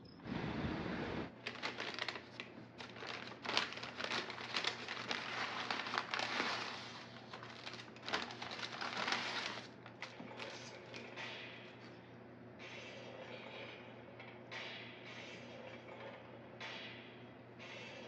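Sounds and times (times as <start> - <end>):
paper bag crinkling and rustling: 1.3 - 11.1.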